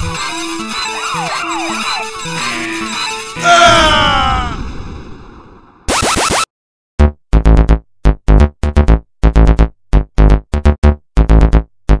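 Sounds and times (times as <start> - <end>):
electronic music with choppy synth: 0.0 - 3.4, 5.9 - 12.0.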